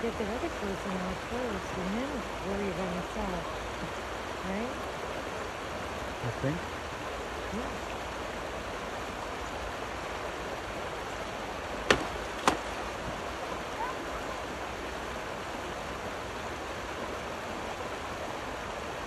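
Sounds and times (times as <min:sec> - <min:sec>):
river rapids rushing: 0:00.0 - 0:19.0
sharp knocks: 0:11.9 - 0:12.7.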